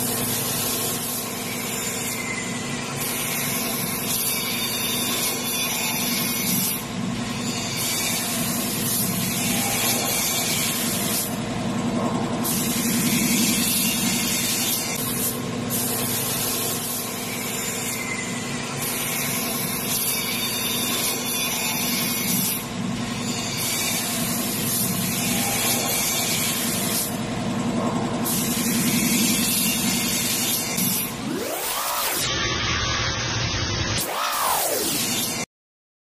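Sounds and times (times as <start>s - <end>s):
rising whoosh: 31.1s - 35.3s.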